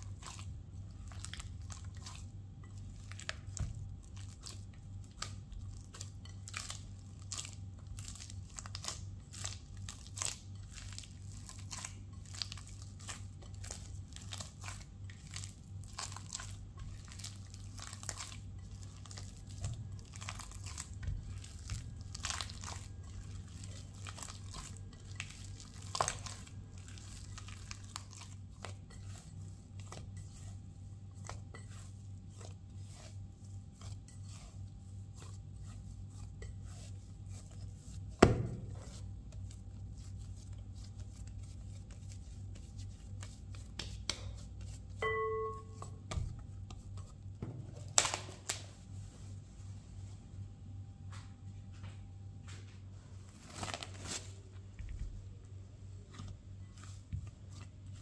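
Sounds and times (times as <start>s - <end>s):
dough squishing: 0.0s - 58.0s
tea towel rustling: 51.9s - 58.0s.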